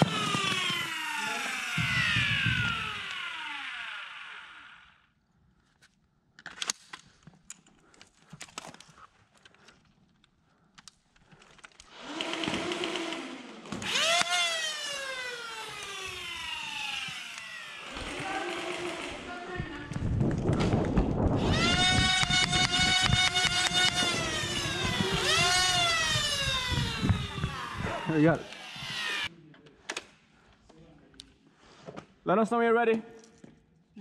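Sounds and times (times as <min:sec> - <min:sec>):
foam blaster motors whirring: 0:00.0 - 0:05.0, 0:11.8 - 0:29.3.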